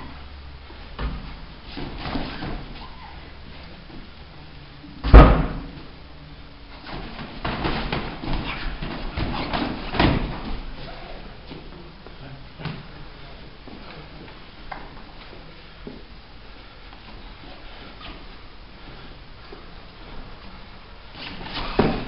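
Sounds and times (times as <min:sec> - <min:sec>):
loud thud of a strike: 0:05.0 - 0:05.7
thumps on foam mats: 0:06.8 - 0:10.7.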